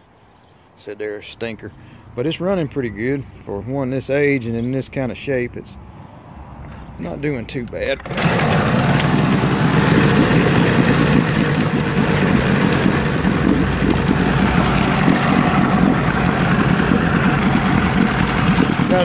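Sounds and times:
outboard motor running: 8.0s - 19.0s
propeller churning water: 8.0s - 19.0s.

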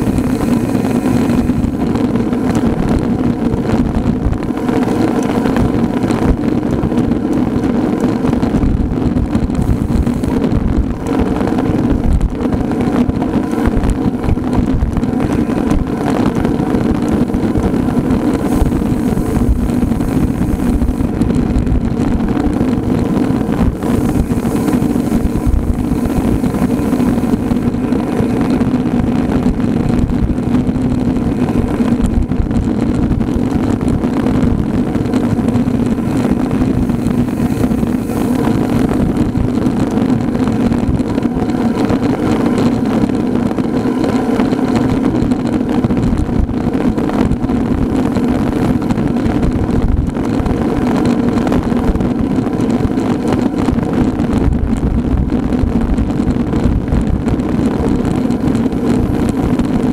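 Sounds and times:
road and wind noise: 0.0s - 59.9s
steady engine drone: 0.0s - 59.9s.

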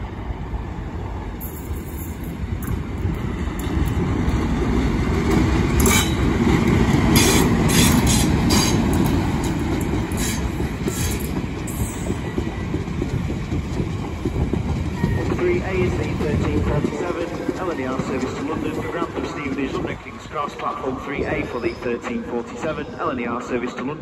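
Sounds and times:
diesel locomotive rumble: 0.0s - 21.8s
wheel clatters and squeals: 10.1s - 12.9s.

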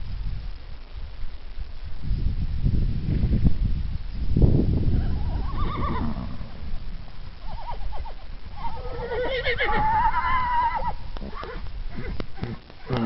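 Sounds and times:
horses whinnying: 5.0s - 6.6s, 7.4s - 13.0s.

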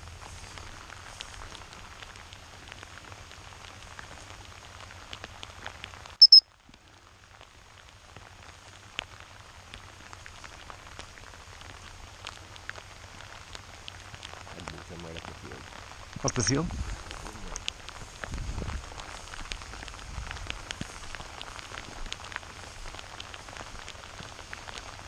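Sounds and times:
steady rain pattering: 0.0s - 25.0s
dog whistle blasts: 6.2s - 6.4s.

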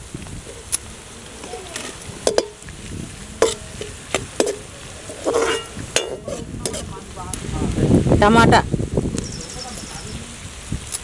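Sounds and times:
light sizzle of oil: 0.0s - 8.0s
metal skimmer scraping a pan: 1.4s - 2.6s, 3.4s - 7.0s.

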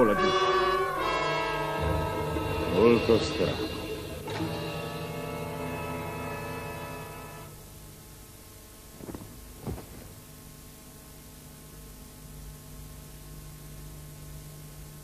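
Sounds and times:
faint low hum: 0.0s - 15.0s
soft thuds: 8.9s - 10.4s.

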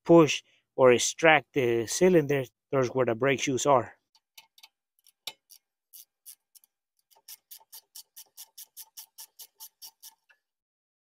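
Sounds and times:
ratchet wrench clicking: 4.5s - 10.2s.

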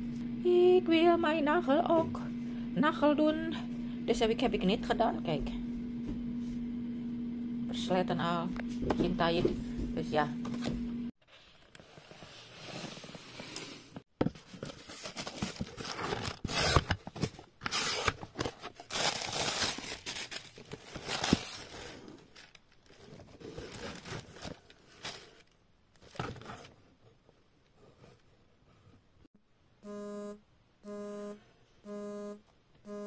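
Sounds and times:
packaging being torn and crinkled: 14.9s - 26.2s.

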